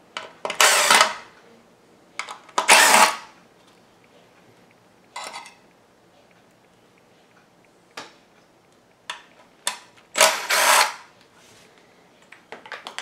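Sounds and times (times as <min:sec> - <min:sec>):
cordless drill whirring: 0:02.7 - 0:03.3, 0:10.2 - 0:11.0.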